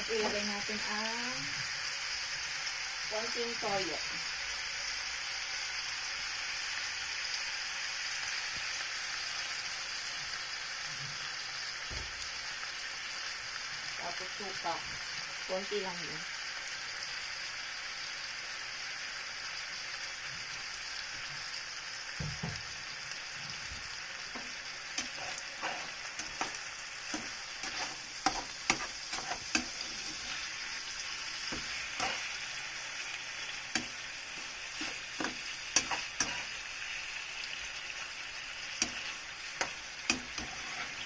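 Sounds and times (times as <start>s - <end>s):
chicken sizzling in a frying pan: 0.0s - 41.0s
metal spatula scraping a pan: 24.2s - 36.7s, 38.6s - 41.0s.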